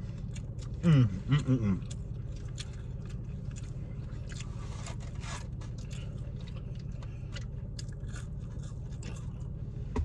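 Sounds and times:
person eating fried food: 0.0s - 9.8s
low car cabin hum: 0.0s - 10.0s
styrofoam boxes scraping: 4.6s - 5.6s.

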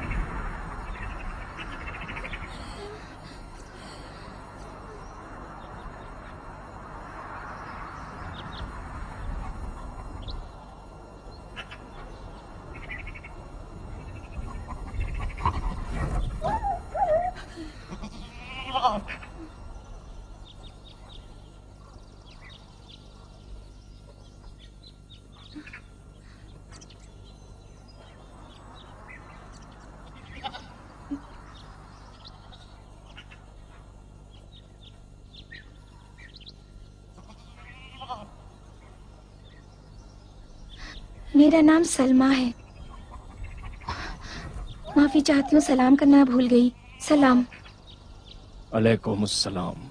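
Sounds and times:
faint bird chirps: 0.8s - 49.9s
sheep bleating: 17.8s - 19.4s, 37.1s - 38.4s.

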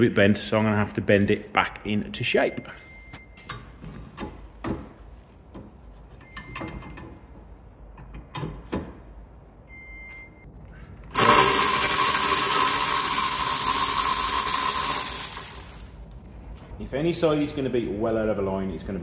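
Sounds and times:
rotary tool high-pitched whine: 11.1s - 15.9s.

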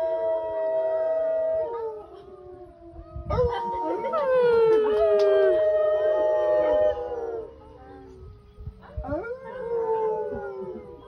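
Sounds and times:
wolves howling in chorus: 0.0s - 11.0s.

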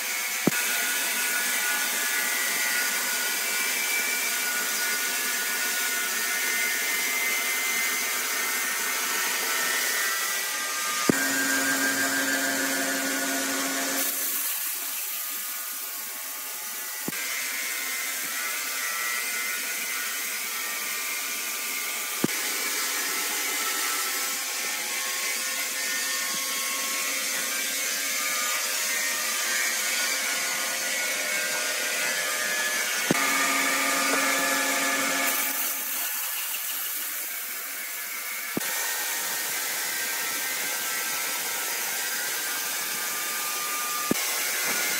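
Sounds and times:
band saw whine: 0.3s - 17.2s, 22.0s - 38.6s.

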